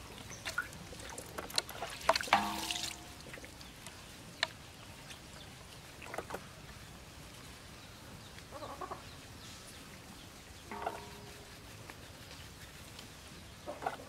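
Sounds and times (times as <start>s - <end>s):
chickens clucking: 8.5s - 9.2s, 13.6s - 14.0s.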